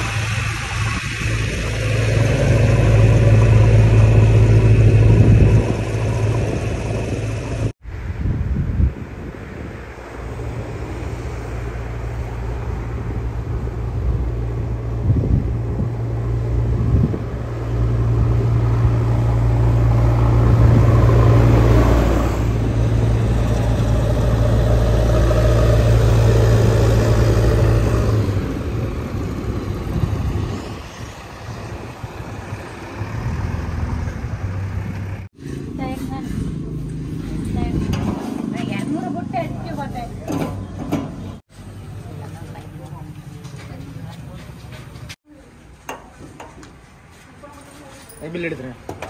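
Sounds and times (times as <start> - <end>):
diesel engine droning: 0.0 - 7.8, 10.3 - 45.2.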